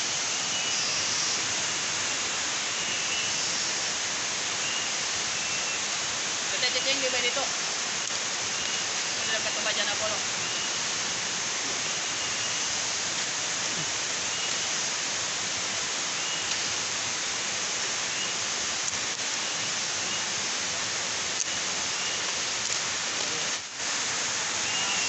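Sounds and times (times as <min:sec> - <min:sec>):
hissing forest background: 0:00.0 - 0:25.0
faint high chirps: 0:08.5 - 0:09.4, 0:10.4 - 0:10.8, 0:24.6 - 0:25.0.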